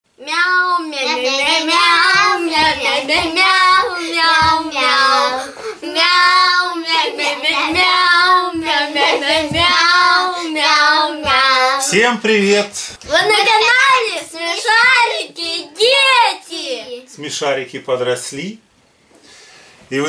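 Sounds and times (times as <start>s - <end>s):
child singing: 0.2s - 11.9s, 13.1s - 17.1s.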